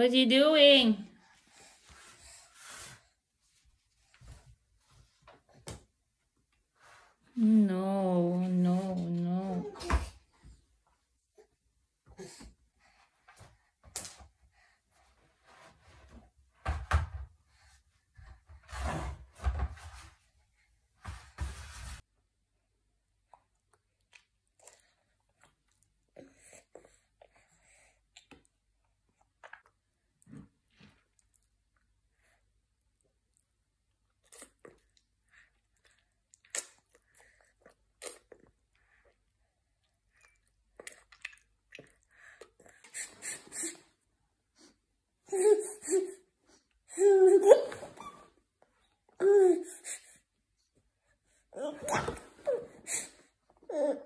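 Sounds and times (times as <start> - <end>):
plastic basket scraping on floor: 18.6 - 20.2, 21.0 - 22.0
baby chewing and mouth smacks: 23.2 - 43.3.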